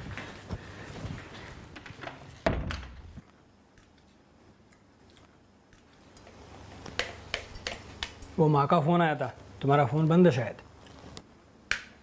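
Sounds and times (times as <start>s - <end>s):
wooden door shutting: 2.0s - 3.2s.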